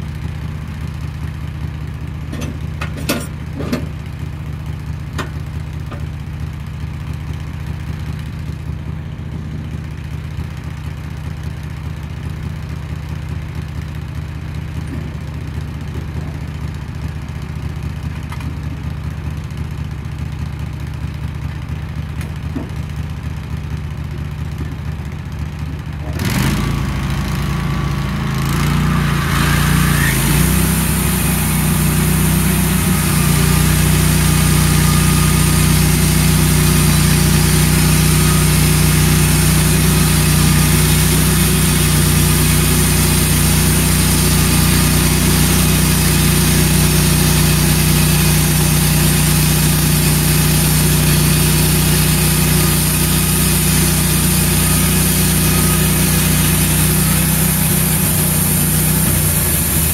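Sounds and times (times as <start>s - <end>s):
sawmill engine running: 0.0s - 59.9s
band saw cutting log: 26.0s - 59.9s.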